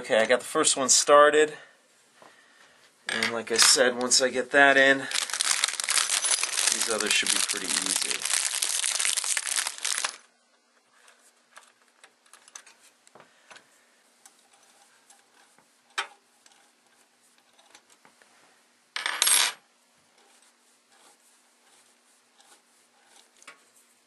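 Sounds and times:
rustling and scraping: 0:03.1 - 0:10.2, 0:14.2 - 0:18.6, 0:20.1 - 0:24.0
small metal parts clinking: 0:05.1 - 0:10.2.

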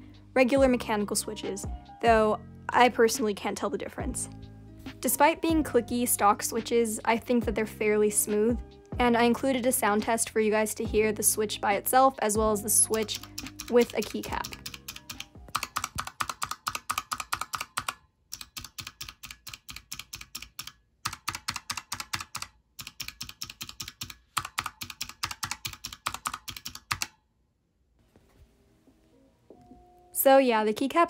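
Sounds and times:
keyboard switch clicking rapidly: 0:13.1 - 0:27.2.

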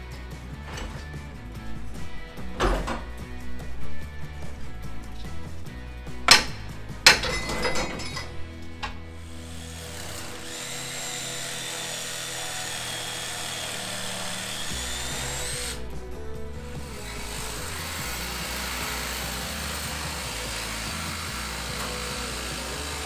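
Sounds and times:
background music with bass line: 0:00.0 - 0:23.0
power tool motor whine: 0:08.9 - 0:15.9, 0:16.6 - 0:23.0.

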